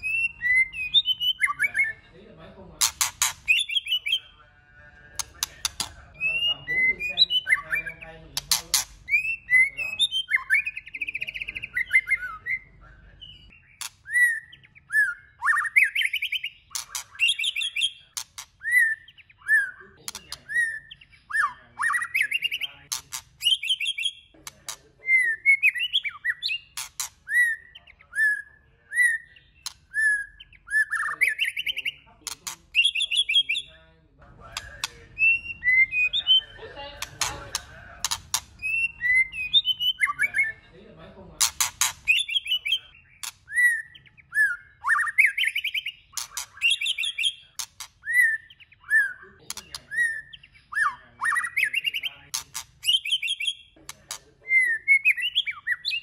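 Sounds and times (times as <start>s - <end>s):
bird singing whistled phrases: 0.0s - 2.0s, 3.4s - 4.4s, 5.7s - 8.1s, 8.7s - 22.8s, 23.4s - 24.3s, 25.0s - 33.7s, 34.6s - 36.6s, 38.6s - 40.6s, 42.1s - 52.2s, 52.8s - 53.8s, 54.4s - 56.0s
bird clicks: 2.8s - 3.7s, 5.2s - 6.0s, 8.4s - 9.2s, 20.0s - 20.4s, 34.5s - 35.0s, 37.0s - 38.7s, 41.4s - 42.2s, 52.3s - 52.7s.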